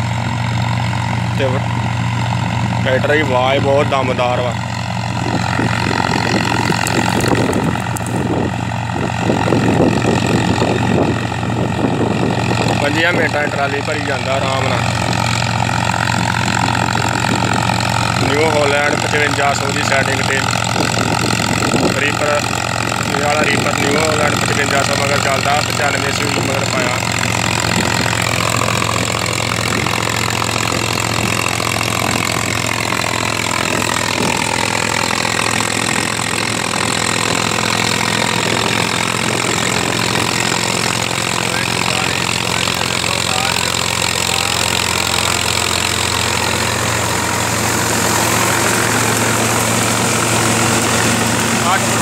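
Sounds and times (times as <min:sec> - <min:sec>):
reaper machinery whirring: 0:00.0 - 0:52.0
tractor diesel engine running: 0:00.0 - 0:52.0.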